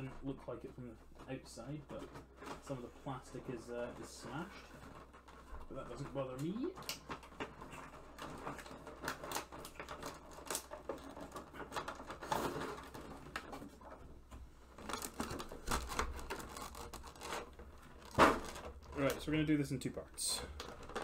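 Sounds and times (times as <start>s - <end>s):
plastic packaging crinkling: 0.0s - 14.0s, 14.7s - 21.0s.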